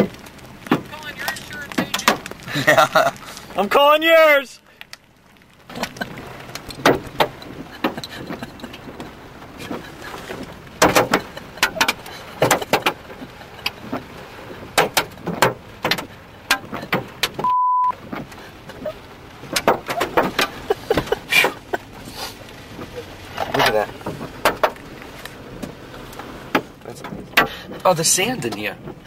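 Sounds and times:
hailstones knocking and clattering: 0.0s - 17.4s, 18.0s - 29.0s
steady beep: 17.4s - 18.0s.

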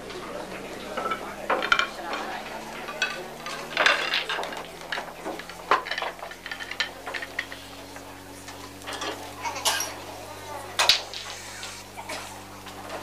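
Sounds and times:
dishes and cutlery clinking: 0.9s - 8.1s, 8.7s - 10.0s.

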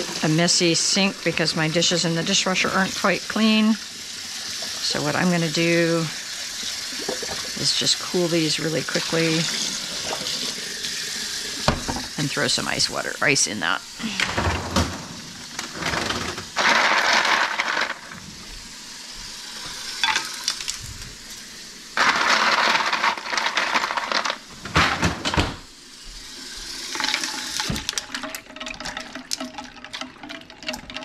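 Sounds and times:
ice cubes clattering: 14.8s - 18.2s, 20.0s - 20.8s, 22.0s - 25.2s.

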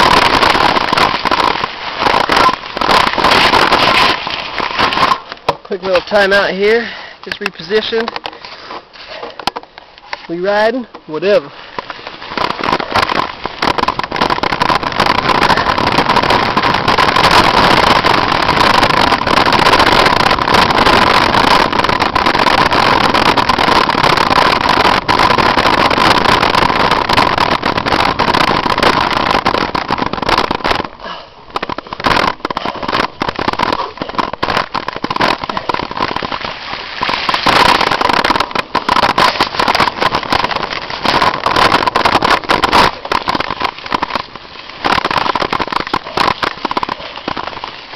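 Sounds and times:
bike rattling over bumps: 0.0s - 6.4s, 11.4s - 29.0s, 35.3s - 44.8s
rush of wind and tyre noise: 11.7s - 31.0s.

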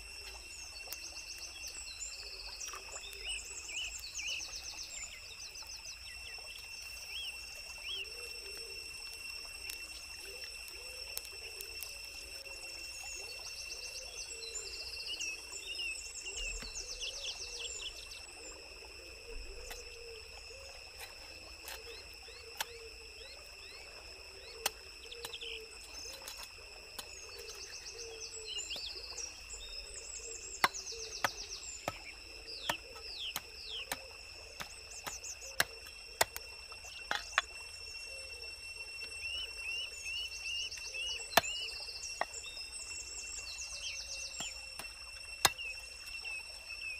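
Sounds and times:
high insect whine: 0.0s - 46.9s
bird chirps: 13.0s - 18.5s, 27.0s - 36.3s, 39.1s - 46.9s.

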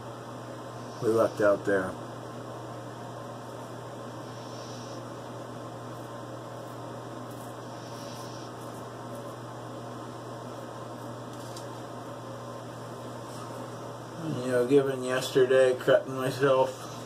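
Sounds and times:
room noise hum and hiss: 0.0s - 17.0s
razor cutting stubble: 0.8s - 1.8s, 5.9s - 9.4s.

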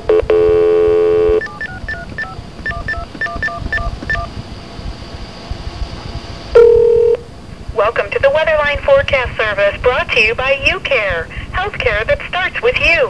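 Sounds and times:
low line noise: 0.0s - 13.0s
telephone keypad beeps: 0.1s - 4.3s, 6.6s - 7.2s.

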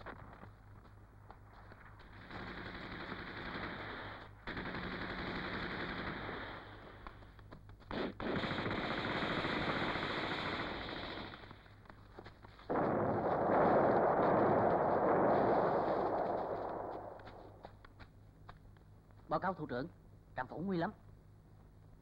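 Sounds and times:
automatic gunfire: 2.2s - 7.0s, 7.9s - 11.6s.

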